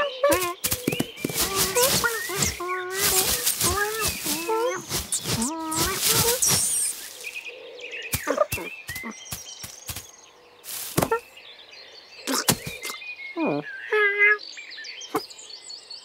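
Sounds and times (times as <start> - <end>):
birds chirping: 0.0 - 16.0
cartoon thumps and rustles: 0.3 - 7.4, 8.1 - 10.1, 10.7 - 11.2, 12.3 - 12.9.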